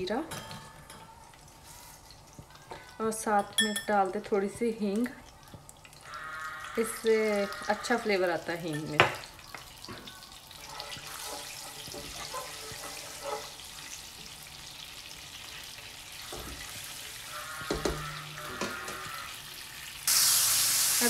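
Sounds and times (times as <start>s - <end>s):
spices sizzling in hot oil: 0.0s - 21.0s
spatula tapping pan: 17.6s - 19.1s.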